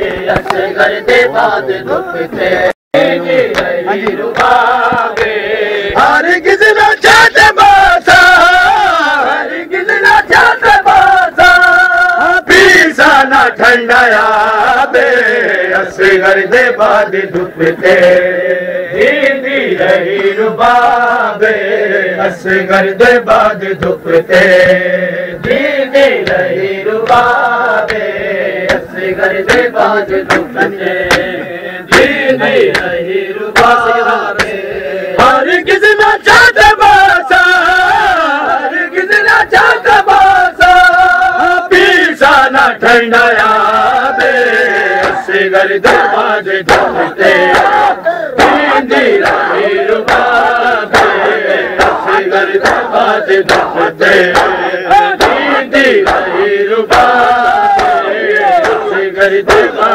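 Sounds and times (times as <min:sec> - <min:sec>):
men chanting a lament: 0:00.0 - 0:59.9
chest-beating slaps: 0:00.2 - 0:00.7, 0:03.5 - 0:06.0, 0:26.2 - 0:33.0, 0:34.4 - 0:34.6, 0:44.2 - 0:46.1, 0:46.7 - 0:47.8, 0:48.4 - 0:54.6, 0:55.2 - 0:57.2, 0:57.8 - 0:58.9.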